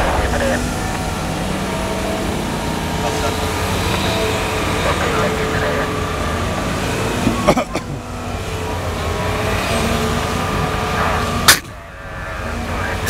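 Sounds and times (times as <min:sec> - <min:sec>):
sharp bang: 0:00.0 - 0:04.1
excavator diesel engine running: 0:00.0 - 0:13.0.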